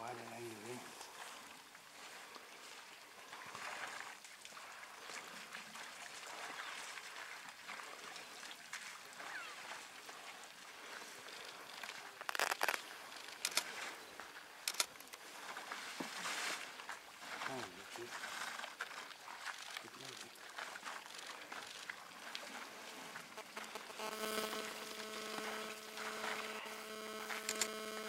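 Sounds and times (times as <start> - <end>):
soft steady hiss: 0.0 - 3.4, 21.2 - 28.0.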